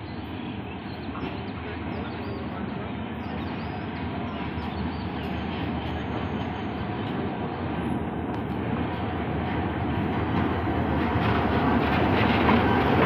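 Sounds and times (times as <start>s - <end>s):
diesel locomotive engine hum: 0.0s - 13.0s.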